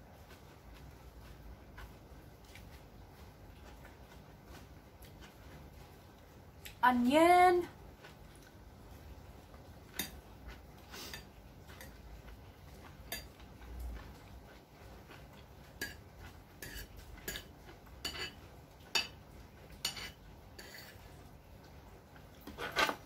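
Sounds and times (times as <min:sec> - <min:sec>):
cutlery clinking on a dish: 0:09.9 - 0:10.2, 0:13.0 - 0:13.4, 0:15.8 - 0:16.0, 0:16.6 - 0:19.2, 0:19.8 - 0:21.0.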